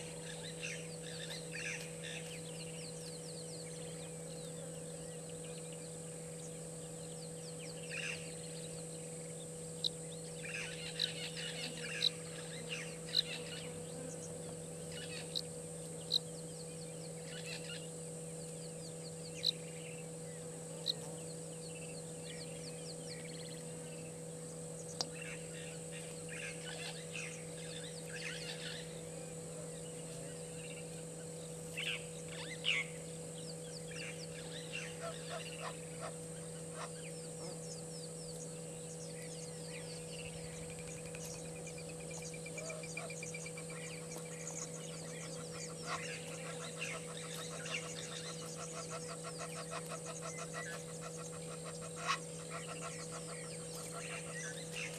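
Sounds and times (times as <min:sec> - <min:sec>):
rapid bird trill: 0:00.0 - 0:29.1, 0:29.8 - 0:54.9
small birds chirping: 0:00.0 - 0:54.9
steady low hum: 0:00.0 - 0:54.9
geese honking: 0:44.9 - 0:54.9.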